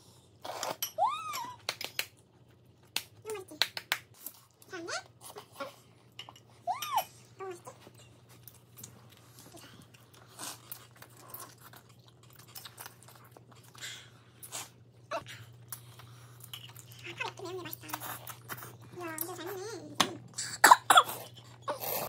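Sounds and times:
children chewing and crunching: 0.0s - 22.0s
slurp: 0.4s - 0.8s.

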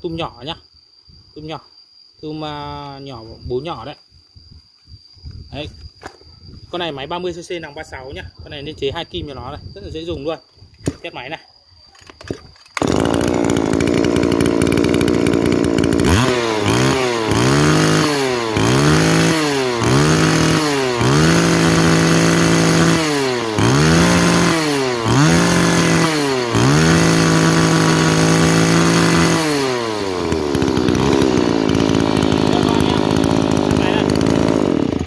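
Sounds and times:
two-stroke engine revving: 12.8s - 35.0s.

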